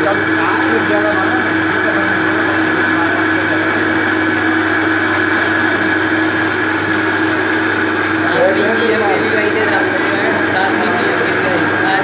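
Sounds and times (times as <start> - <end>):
high cutting whine: 0.0 - 12.0
metal lathe running: 0.0 - 12.0.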